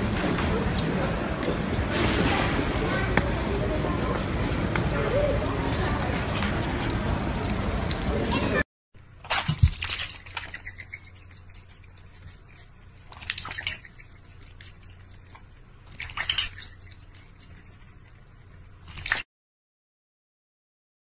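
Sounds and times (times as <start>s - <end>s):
water splashing in a metal bowl: 9.2s - 11.7s, 13.1s - 14.7s, 15.9s - 17.1s, 18.8s - 19.2s
duck dabbling in water: 9.2s - 18.0s.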